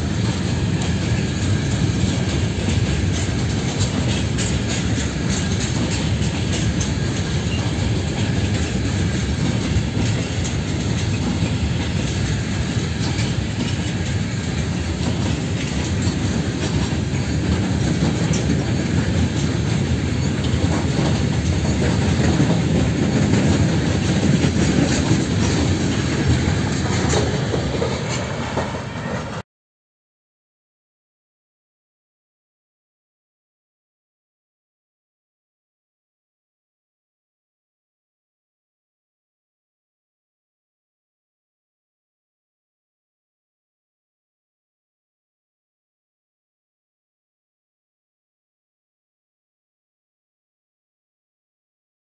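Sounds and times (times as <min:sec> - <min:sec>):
freight wagons rolling on rails: 0:00.0 - 0:29.4
wheels clickety-clack over joints: 0:00.0 - 0:29.4.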